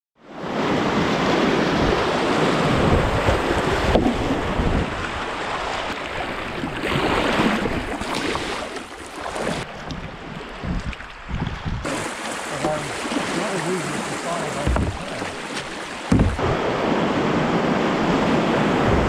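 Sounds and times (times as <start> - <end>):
wind noise on microphone: 0.7 - 5.6, 9.5 - 12.1, 16.1 - 19.0
paddle splashes: 2.2 - 16.6
river rapids rushing: 11.9 - 19.0.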